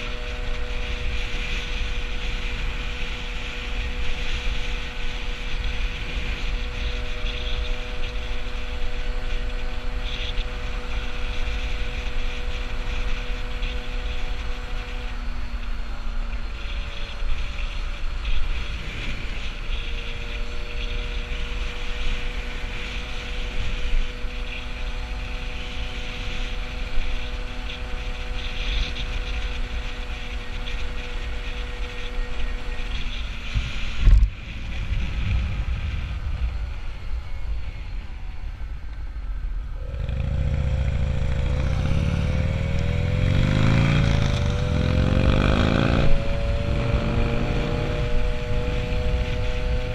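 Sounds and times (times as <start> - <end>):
wind noise on microphone: 0.0 - 49.9
moped engine running: 39.3 - 49.9.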